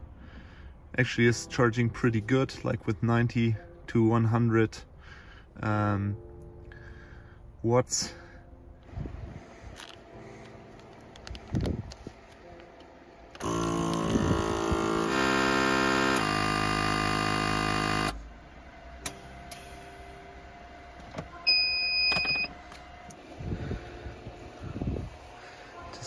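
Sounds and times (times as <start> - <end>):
vacuum sealer pump motor: 13.4 - 18.2
electronic beep: 21.5 - 22.5.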